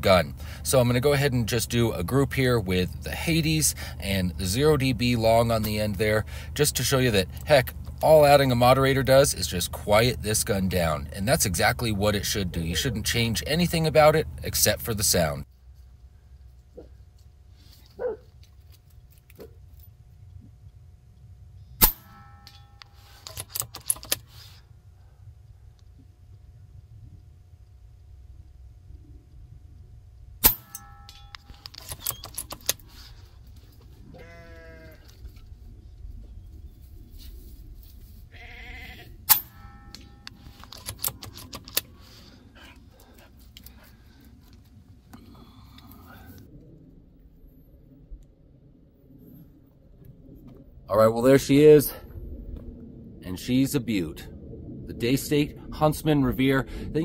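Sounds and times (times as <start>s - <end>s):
air rifle shot: 21.8s - 22.2s
brief ringing tone: 22.0s - 23.0s, 30.6s - 31.6s, 39.4s - 40.4s
rifle action clicks: 39.3s - 41.9s.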